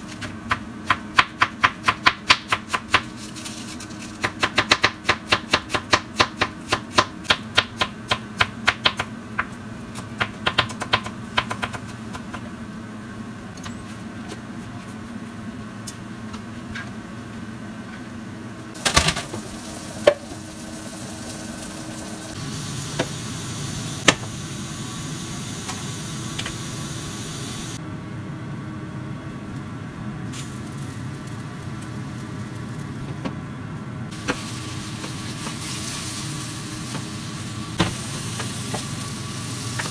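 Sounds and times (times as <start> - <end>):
food sizzling in a pan: 18.8 - 27.8, 34.1 - 39.9.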